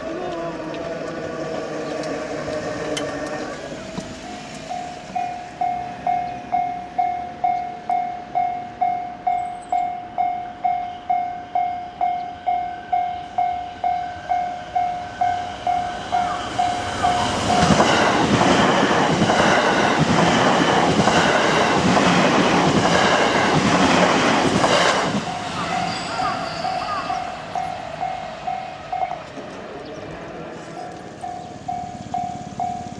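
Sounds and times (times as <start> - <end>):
train wheels clattering over rails: 0.0 - 5.8, 16.1 - 26.9.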